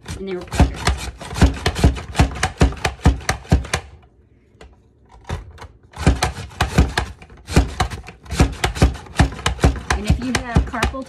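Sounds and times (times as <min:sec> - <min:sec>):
vegetable chopper clacking: 0:00.0 - 0:04.0, 0:05.9 - 0:11.0.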